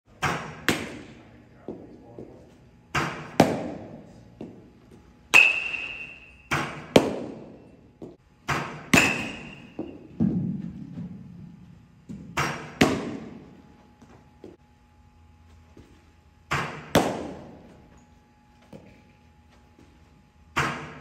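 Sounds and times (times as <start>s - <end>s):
baseball popping into catcher's mitt: 16.5s - 17.7s.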